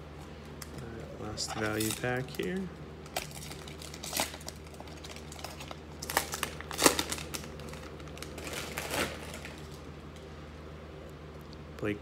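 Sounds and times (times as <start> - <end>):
foil wrapper tearing and crinkling: 1.4 - 9.8.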